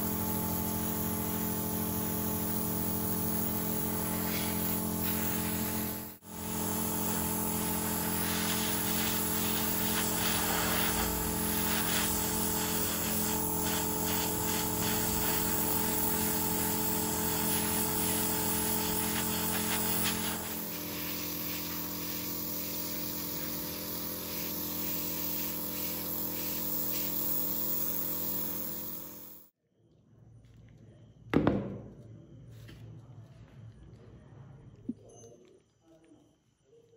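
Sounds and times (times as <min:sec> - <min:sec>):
air compressor hum: 0:00.0 - 0:29.5
airbrush spraying hiss: 0:00.0 - 0:29.5.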